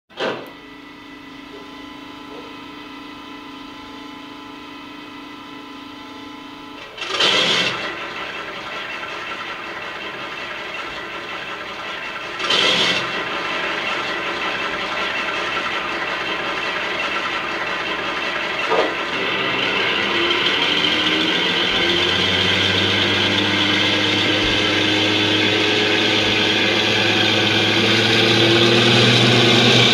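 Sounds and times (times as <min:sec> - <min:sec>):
diesel engine starting and running: 0:06.8 - 0:29.9.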